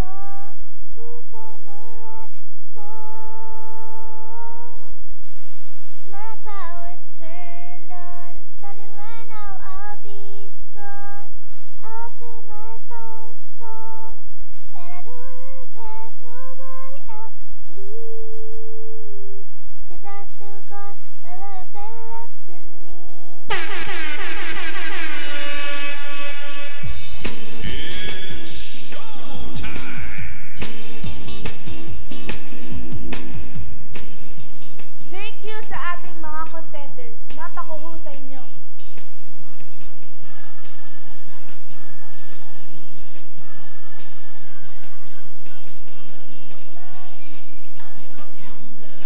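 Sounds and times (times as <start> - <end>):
girl singing into microphone: 0.0 - 5.0, 6.0 - 19.1, 19.8 - 23.9, 35.0 - 49.0.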